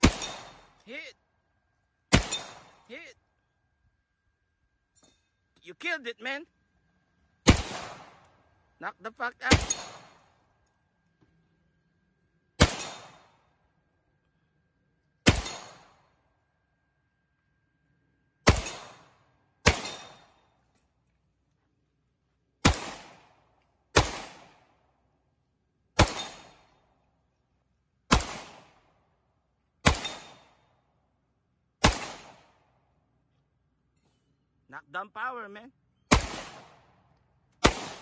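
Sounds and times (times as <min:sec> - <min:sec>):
rifle shots with echo: 0:00.0 - 0:00.8, 0:02.1 - 0:02.9, 0:07.4 - 0:08.4, 0:09.4 - 0:10.4, 0:12.6 - 0:13.5, 0:15.2 - 0:16.2, 0:18.4 - 0:20.5, 0:22.6 - 0:24.9, 0:26.0 - 0:26.8, 0:28.1 - 0:28.9, 0:29.8 - 0:30.7, 0:31.8 - 0:32.7, 0:36.1 - 0:38.0.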